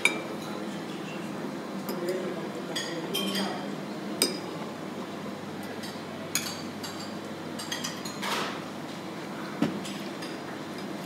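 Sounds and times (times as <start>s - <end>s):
forks clinking on plates: 2.0s - 3.6s, 5.8s - 8.5s.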